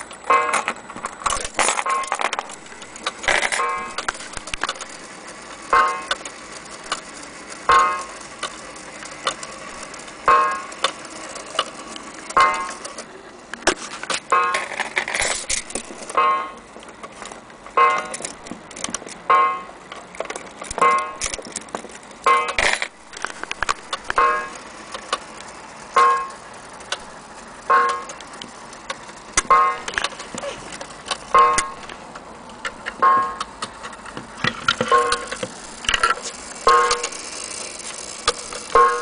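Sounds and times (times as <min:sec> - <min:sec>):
mantel clock striking: 0:00.2 - 0:00.8, 0:01.8 - 0:05.0, 0:05.6 - 0:06.8, 0:07.6 - 0:13.0, 0:14.2 - 0:14.8, 0:16.0 - 0:16.7, 0:17.7 - 0:18.4, 0:19.2 - 0:19.9, 0:20.7 - 0:21.4, 0:22.2 - 0:22.8, 0:23.6 - 0:26.5, 0:27.6 - 0:28.3, 0:28.9 - 0:30.5, 0:31.3 - 0:32.0, 0:32.8 - 0:37.6, 0:38.2 - 0:39.0
fast clock ticking: 0:01.8 - 0:13.0, 0:20.6 - 0:32.0, 0:34.8 - 0:39.0.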